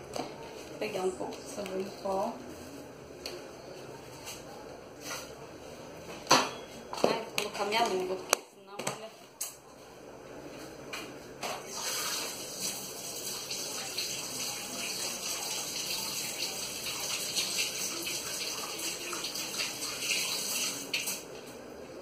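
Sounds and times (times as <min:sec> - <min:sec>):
tap water running into sink: 0:11.7 - 0:21.2.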